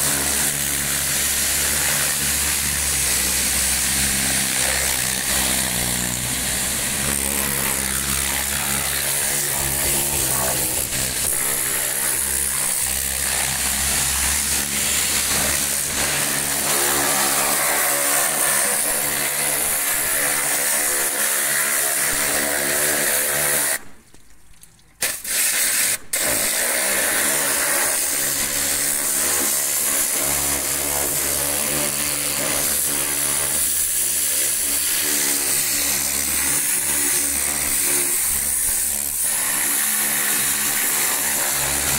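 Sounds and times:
high-pressure water jet hissing: 0.0s - 23.8s, 25.0s - 41.9s
pressure washer pump humming: 0.0s - 23.8s, 25.0s - 41.9s.

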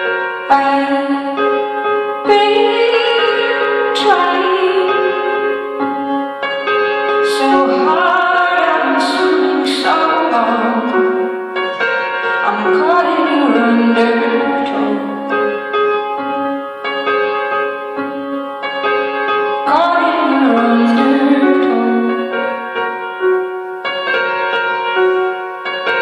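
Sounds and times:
piano playing slow chords: 0.0s - 26.0s
woman singing: 0.5s - 5.6s, 7.2s - 11.3s, 12.4s - 15.5s, 19.6s - 22.5s.

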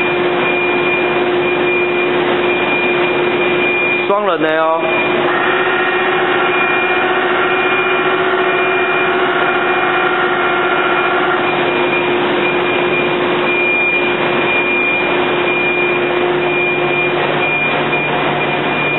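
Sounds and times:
production machinery whirring: 0.0s - 18.9s
low hum: 4.8s - 18.9s.

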